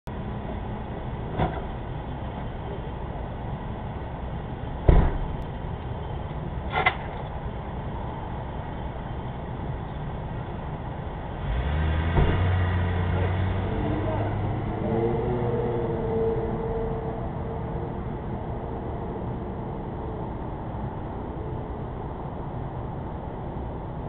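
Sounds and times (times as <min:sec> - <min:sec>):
car door slamming: 0:04.8 - 0:05.4
car engine starting and running: 0:08.0 - 0:23.9.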